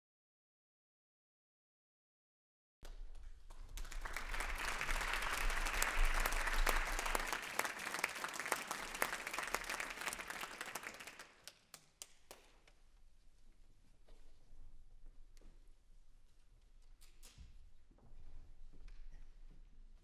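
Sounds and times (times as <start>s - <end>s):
audience applauding: 3.7s - 12.4s.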